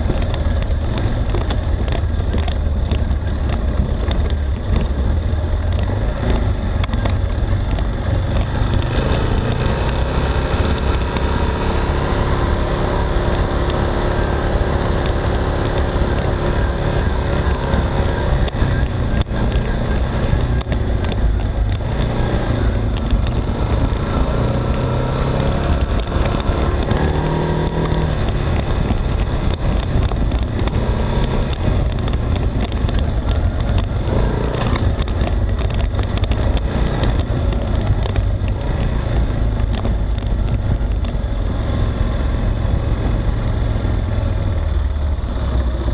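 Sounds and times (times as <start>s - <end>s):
atv engine running: 0.0s - 45.9s
knocks and rattles of vehicle: 0.0s - 45.9s.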